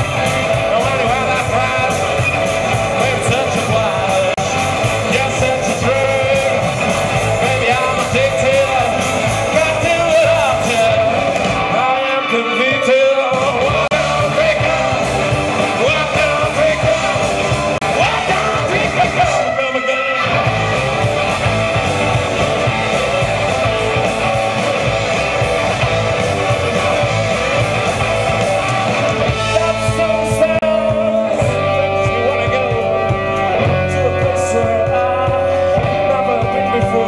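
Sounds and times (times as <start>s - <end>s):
drum kit: 0.0s - 37.0s
electric guitars: 0.0s - 37.0s
person singing: 0.2s - 21.1s, 29.3s - 37.0s.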